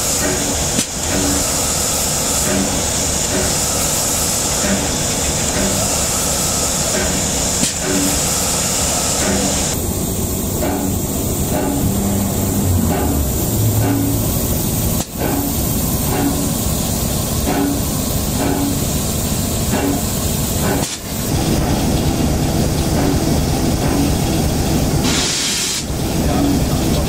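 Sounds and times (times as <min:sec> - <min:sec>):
steam locomotive hissing: 0:00.0 - 0:27.0
burst of steam hiss: 0:25.0 - 0:25.9.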